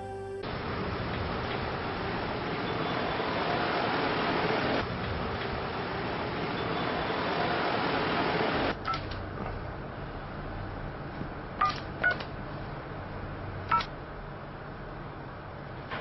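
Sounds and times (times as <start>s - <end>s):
low hum: 0.0s - 0.9s.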